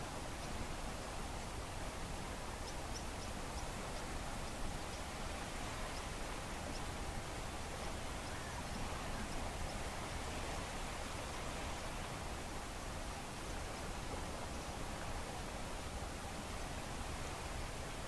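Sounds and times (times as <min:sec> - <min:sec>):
calm sea wash: 0:00.0 - 0:18.0.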